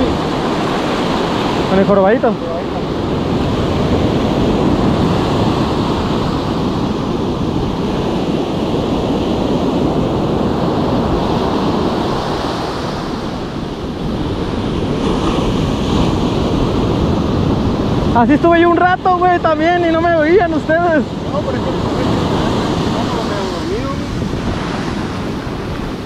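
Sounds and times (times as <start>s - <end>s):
ocean surf breaking on sand: 0.0s - 26.0s.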